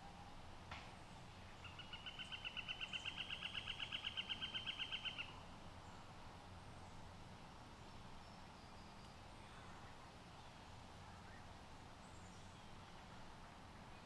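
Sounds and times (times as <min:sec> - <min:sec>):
bird trilling: 0:01.6 - 0:05.3.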